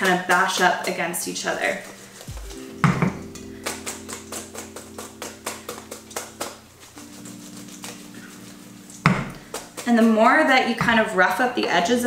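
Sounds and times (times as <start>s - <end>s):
potatoes clacking in metal colander: 0.0s - 1.9s, 8.9s - 12.0s.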